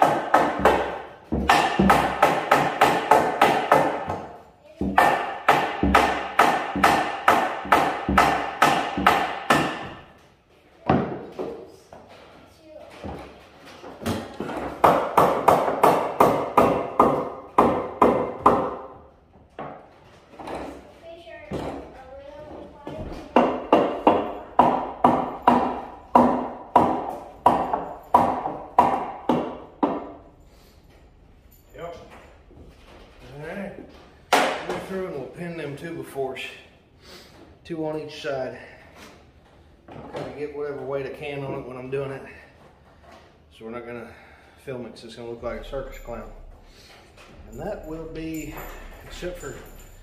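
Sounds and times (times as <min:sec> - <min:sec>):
hammer striking wood: 0:00.0 - 0:10.1, 0:14.0 - 0:19.0, 0:23.3 - 0:30.2, 0:34.3 - 0:34.8.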